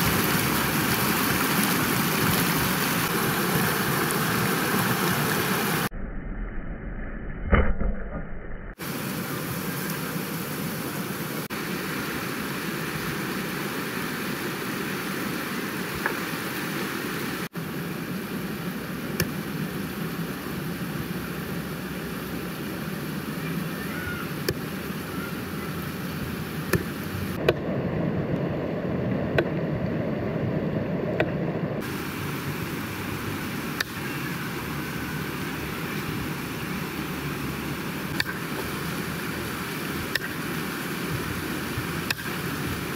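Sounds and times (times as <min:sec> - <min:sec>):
river rushing over rocks: 0:00.0 - 0:05.9, 0:31.8 - 0:42.9.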